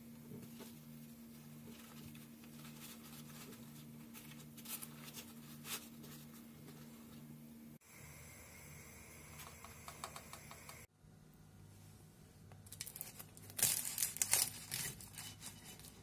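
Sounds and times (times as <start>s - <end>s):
flatbread rustling and crinkling: 0.5s - 7.2s, 12.7s - 16.0s.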